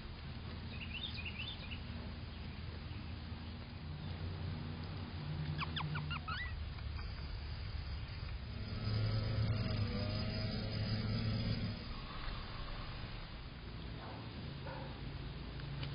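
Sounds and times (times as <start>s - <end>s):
steady low rumble: 0.0s - 15.9s
bird chirps: 0.7s - 4.2s, 5.4s - 13.1s
loud low hum: 6.6s - 15.6s.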